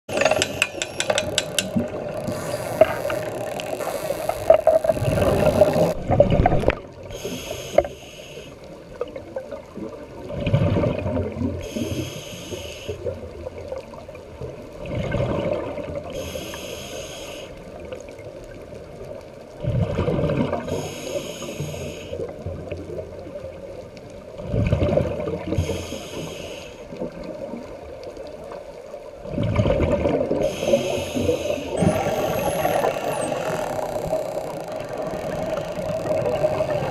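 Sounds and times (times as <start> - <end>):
exhaled bubbles rumbling: 1.7 - 7.1, 9.0 - 11.6, 13.2 - 16.1, 19.6 - 20.7, 24.4 - 25.6, 29.1 - 30.6, 31.2 - 36.9
regulator hiss on inhale: 7.1 - 8.7, 11.6 - 13.1, 16.2 - 17.7, 20.7 - 22.3, 25.6 - 27.0, 30.4 - 33.3.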